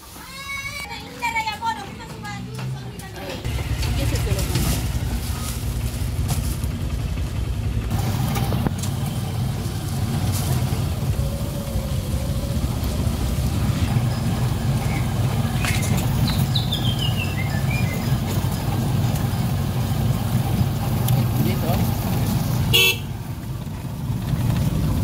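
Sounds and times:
motorcycle engine rumbling: 0.8s - 25.0s
high falling chirp: 14.1s - 18.2s.

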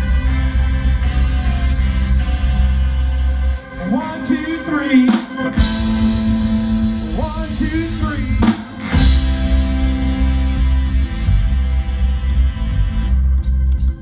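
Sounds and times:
rock band playing: 0.0s - 14.0s
man singing: 3.8s - 5.7s, 7.0s - 9.0s.

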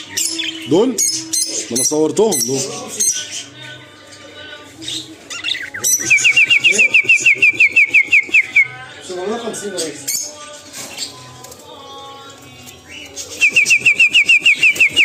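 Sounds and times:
rapid whistled trill: 13.3s - 15.0s.

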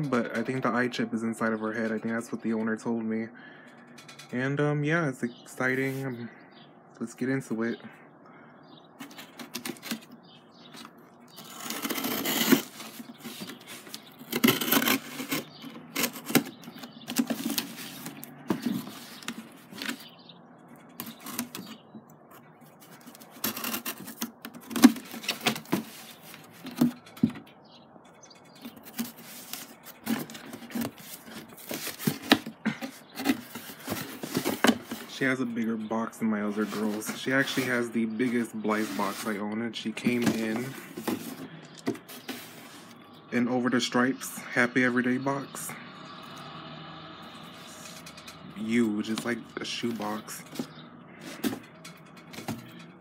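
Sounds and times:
cardboard box scraping and rustling: 10.8s - 20.1s, 22.7s - 27.3s, 28.7s - 35.2s, 36.5s - 39.4s, 40.0s - 43.0s, 48.8s - 51.7s
packing tape tearing: 11.4s - 20.0s, 22.9s - 26.9s.

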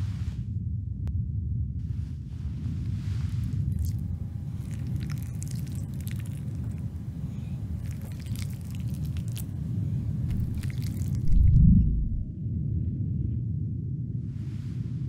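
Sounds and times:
low rumbling drone: 0.0s - 15.0s
soft crunching squishing clicks: 3.5s - 9.6s, 10.2s - 11.5s.

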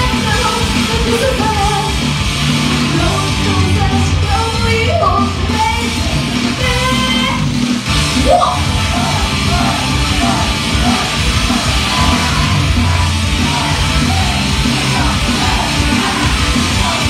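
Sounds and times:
loud heavy rock music: 0.0s - 17.0s
singer yelling into microphone: 8.1s - 17.0s.

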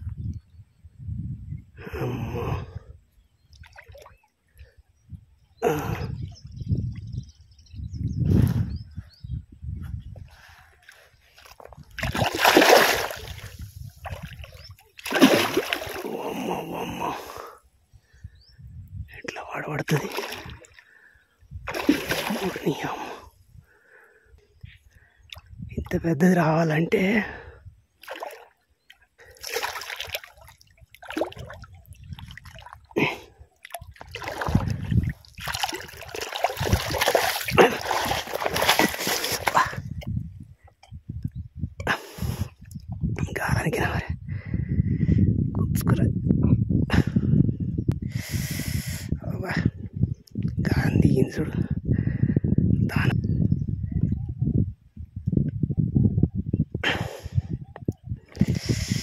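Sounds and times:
fish splashing at the surface: 12.0s - 16.2s, 21.7s - 22.8s, 29.4s - 32.8s, 33.7s - 39.6s.

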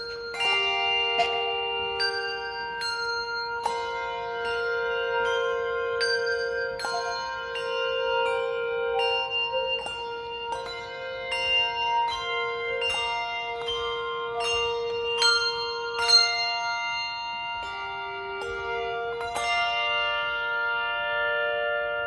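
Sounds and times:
handbells ringing: 0.0s - 22.0s.

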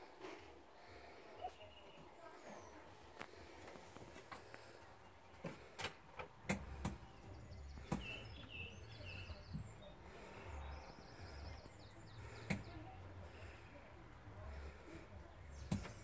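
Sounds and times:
faint bird chirps: 7.0s - 13.0s.

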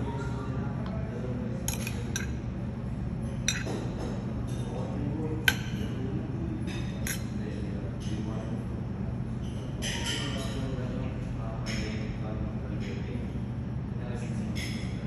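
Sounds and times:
steady low hum: 0.0s - 15.0s
cutlery clinking against dishes: 1.7s - 2.4s, 3.4s - 4.9s, 6.6s - 7.4s, 9.4s - 10.8s.

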